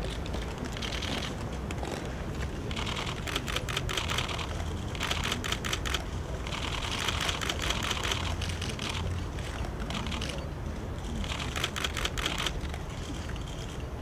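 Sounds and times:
camera shutters clicking: 2.7 - 10.4, 11.2 - 13.8.

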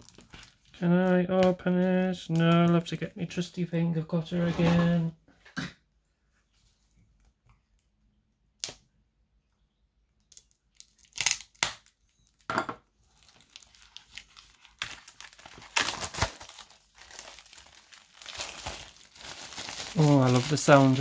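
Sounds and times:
plastic wrap crinkling: 0.0 - 3.0, 10.3 - 21.0
cutter slitting plastic wrap: 13.2 - 21.0.

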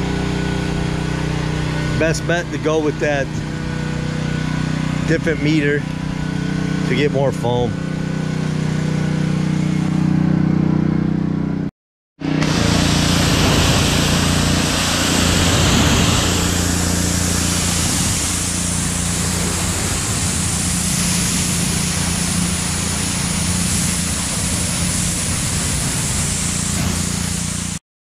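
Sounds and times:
pressure washer engine running: 0.0 - 11.6, 12.2 - 27.8
water jet hissing on metal: 12.4 - 27.8.

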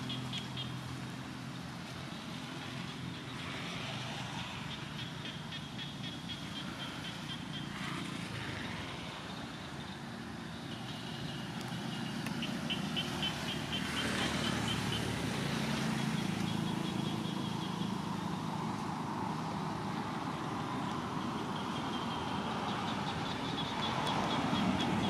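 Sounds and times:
vehicle engine humming: 0.0 - 25.0.

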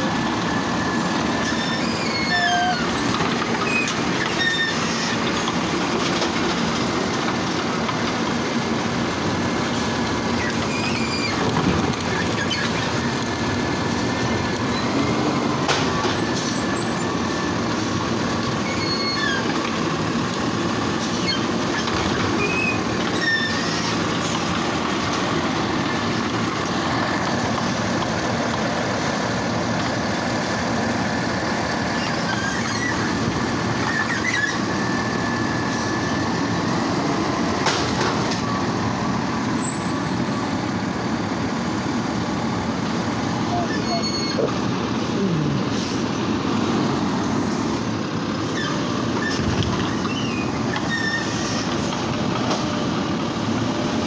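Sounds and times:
garbage truck running: 0.0 - 54.0
short high squeaks: 1.4 - 3.0, 3.6 - 5.5, 10.4 - 11.4, 12.1 - 12.9, 18.6 - 19.5, 21.1 - 24.0, 32.0 - 33.1, 33.8 - 35.0, 43.5 - 44.6, 48.5 - 51.6.

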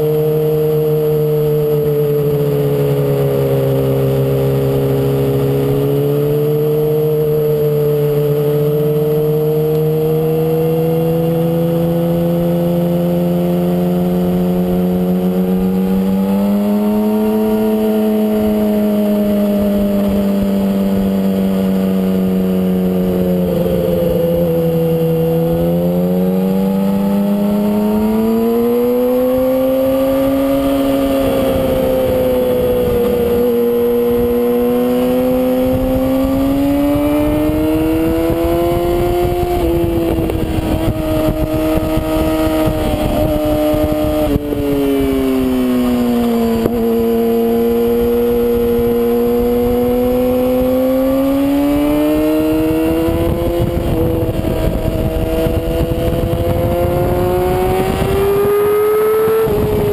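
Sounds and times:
motorcycle engine at high revs: 0.0 - 59.9
heavy wind noise: 14.0 - 59.9.

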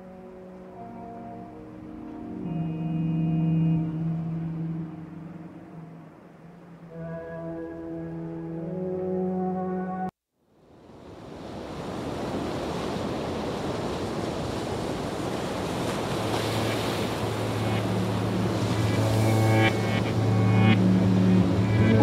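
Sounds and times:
low drone: 0.0 - 9.7, 16.5 - 22.0
pitched music notes: 0.0 - 10.1, 16.6 - 22.0
surf-like wash of noise: 10.8 - 22.0.

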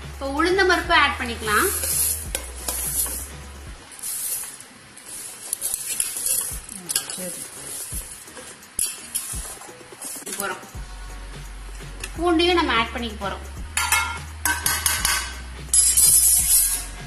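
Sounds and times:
lentils pattering onto rice: 1.7 - 3.3, 3.9 - 10.7
bowl clinking against cooker: 13.8 - 16.2.

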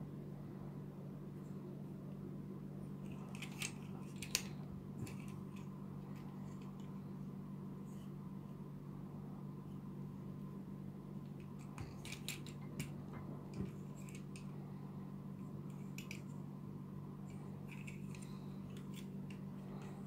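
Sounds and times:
steady low hum: 0.0 - 20.0
plastic parts clicking: 11.4 - 14.5.

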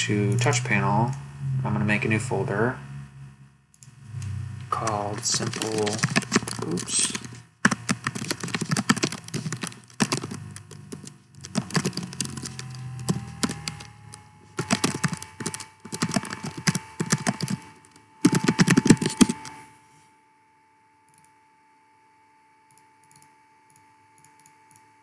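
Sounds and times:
typing on computer keyboard: 4.8 - 13.9, 14.6 - 19.6.

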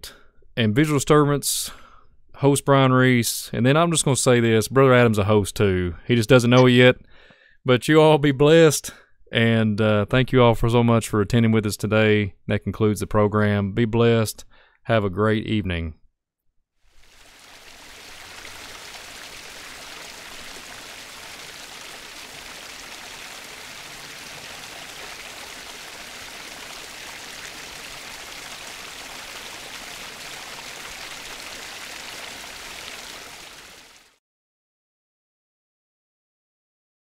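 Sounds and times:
stream water rushing: 16.9 - 34.1.

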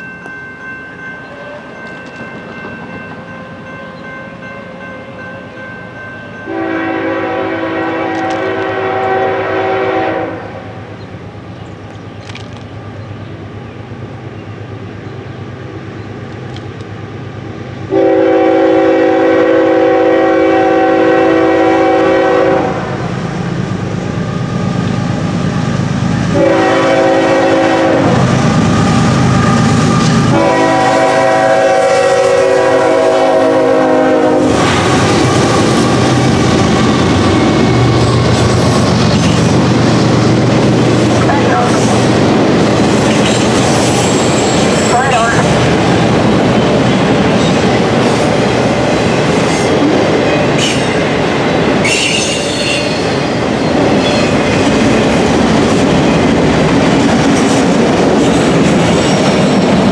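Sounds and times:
locomotive engine and wheels rumbling: 0.0 - 59.9
locomotive air horn blasts: 6.5 - 10.8, 17.9 - 23.1, 26.3 - 28.3, 30.3 - 34.9.

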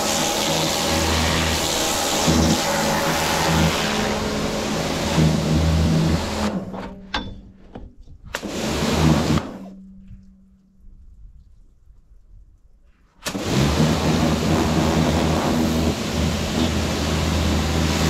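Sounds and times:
pressure washer spraying: 0.0 - 6.6, 8.4 - 9.7, 13.2 - 18.0
pump humming: 0.0 - 7.1, 13.2 - 18.0.

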